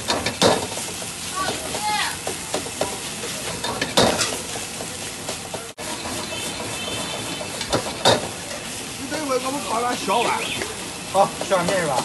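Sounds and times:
rice sizzling in a wok: 0.0s - 12.0s
metal ladle scraping wok: 3.0s - 9.0s.

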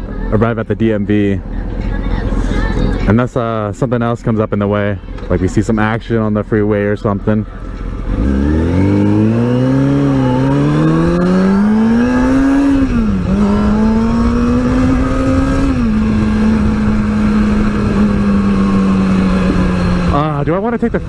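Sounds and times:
motorcycle engine accelerating: 7.6s - 21.0s.

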